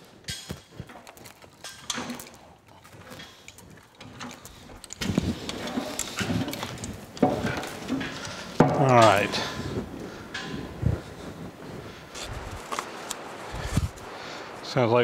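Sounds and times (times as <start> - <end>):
metal knocks and clanks: 0.0 - 11.3
chain rattling: 0.2 - 11.5.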